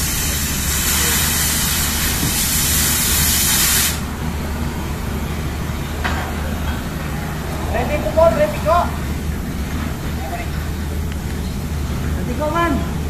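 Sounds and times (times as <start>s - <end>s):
cutting torch hissing: 0.0s - 4.1s
low hum of heavy engines: 0.0s - 13.0s.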